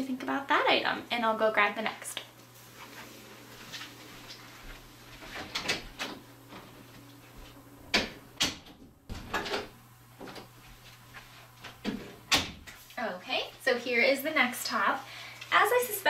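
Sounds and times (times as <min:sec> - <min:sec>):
footsteps: 0:02.6 - 0:07.7, 0:10.1 - 0:13.6.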